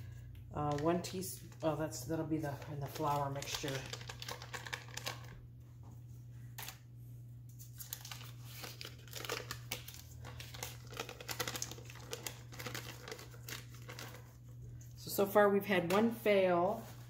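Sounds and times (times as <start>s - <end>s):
paper wrapper crinkling: 2.4s - 5.4s, 7.5s - 14.9s.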